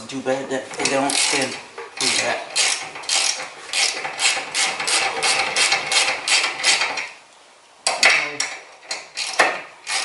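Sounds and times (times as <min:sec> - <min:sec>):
ratchet wrench clicking: 0:01.1 - 0:07.1, 0:08.9 - 0:10.0.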